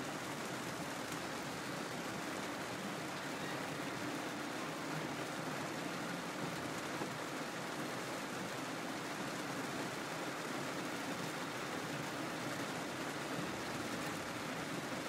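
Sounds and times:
heavy rain on car: 0:00.0 - 0:15.0.

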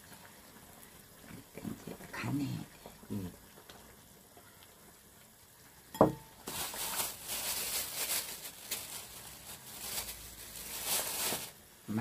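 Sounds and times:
plastic bag crinkling: 0:06.4 - 0:11.6.

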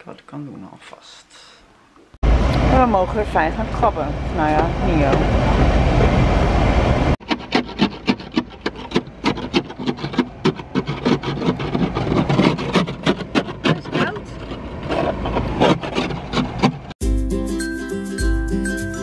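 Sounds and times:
ice scraper on windscreen: 0:07.2 - 0:17.0.

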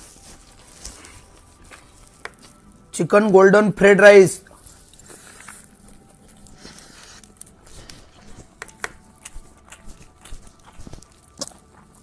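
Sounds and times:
wet chewing: 0:00.2 - 0:02.8, 0:04.5 - 0:12.0
lip smacks: 0:08.6 - 0:11.9.

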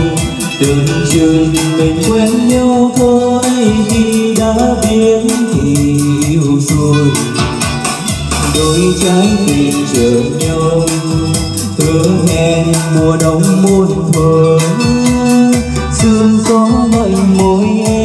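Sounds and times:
karaoke backing track with beat: 0:00.0 - 0:18.0
man singing into microphone: 0:00.0 - 0:18.0.

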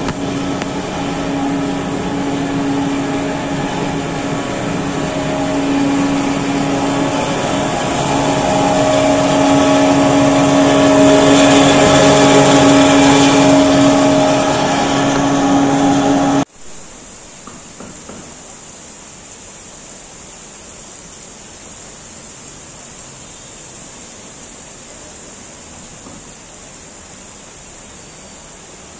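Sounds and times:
exhaust fans quiet whoosh: 0:00.0 - 0:16.5
loud rough exhaust fan hum: 0:00.0 - 0:16.5.

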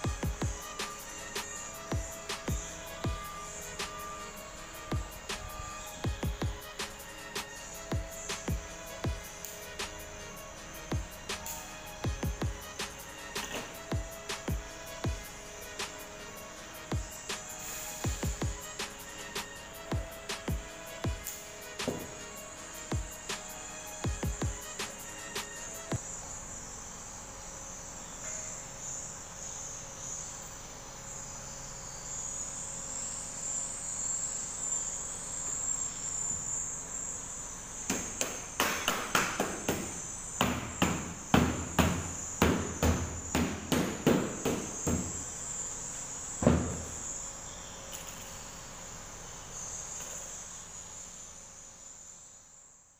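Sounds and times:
high-pitched chirring: 0:00.0 - 0:26.3.

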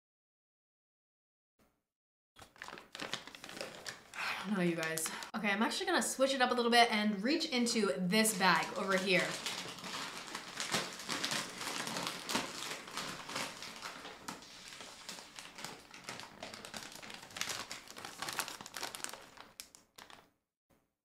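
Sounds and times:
paper bag rustling: 0:02.4 - 0:05.2, 0:08.2 - 0:20.3
plastic snack bag crinkling: 0:02.4 - 0:05.3, 0:07.7 - 0:20.4.

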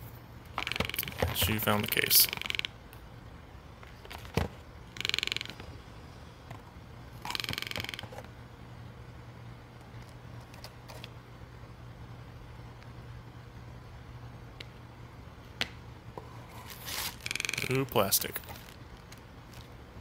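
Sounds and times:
cardboard rattling creaks: 0:00.5 - 0:02.7, 0:03.8 - 0:05.7, 0:07.2 - 0:08.3, 0:16.7 - 0:19.7.

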